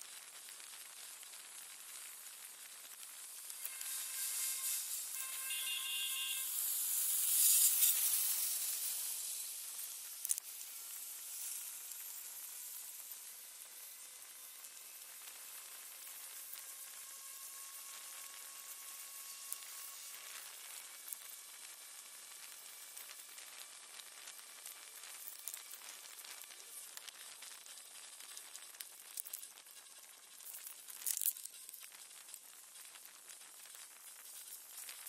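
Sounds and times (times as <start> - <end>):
faint high whine: 0.0 - 35.0
small clicks and crackles: 0.0 - 35.0
vehicle ride hiss: 3.1 - 16.6.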